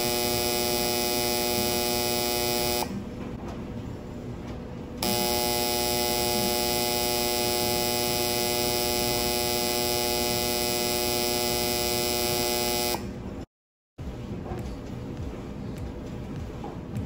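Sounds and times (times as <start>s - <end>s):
dryer buzzer: 0.0s - 3.0s, 5.0s - 13.1s.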